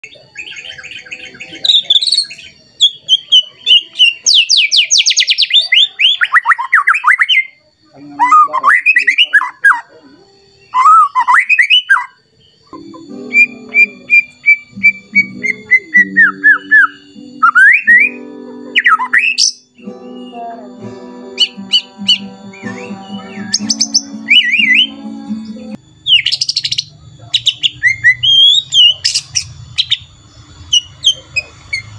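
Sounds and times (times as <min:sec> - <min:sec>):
bird singing trills and whistles: 0:00.0 - 0:25.2, 0:26.0 - 0:31.9
low steady background tones: 0:07.5 - 0:31.9.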